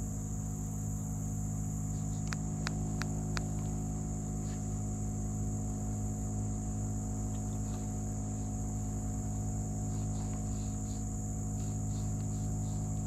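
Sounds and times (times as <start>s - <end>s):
boat motor humming: 0.0s - 13.0s.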